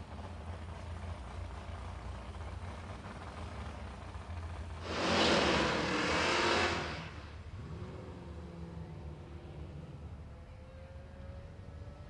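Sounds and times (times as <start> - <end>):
distant drag car engine rumble: 0.0 - 12.0
race car engine rush: 0.0 - 12.0.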